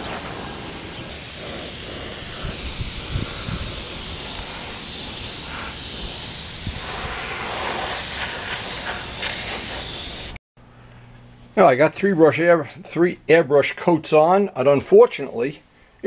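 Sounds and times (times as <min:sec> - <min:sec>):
airbrush hissing: 0:00.0 - 0:10.4.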